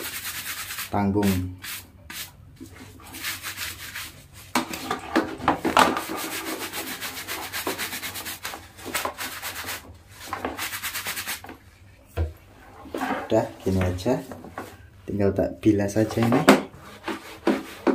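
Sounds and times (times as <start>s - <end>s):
sponge scrubbing bag: 5.9s - 11.4s.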